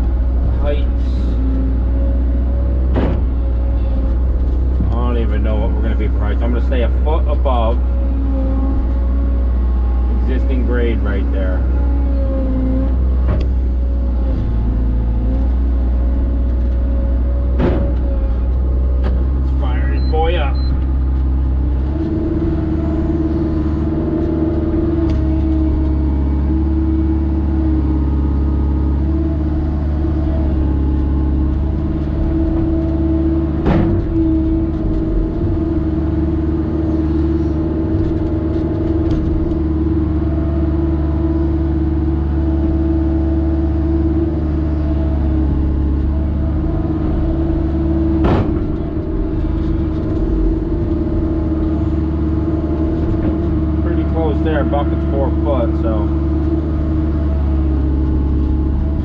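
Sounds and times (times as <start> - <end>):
excavator diesel engine running: 0.0 - 59.0
sharp knocks: 2.8 - 3.4, 17.5 - 18.4.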